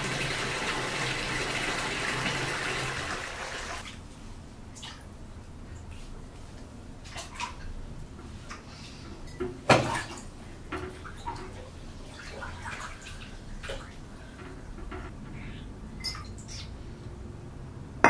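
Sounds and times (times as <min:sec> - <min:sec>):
water sloshing in bathtub: 0:07.0 - 0:15.1
knocks against tub: 0:09.7 - 0:10.1.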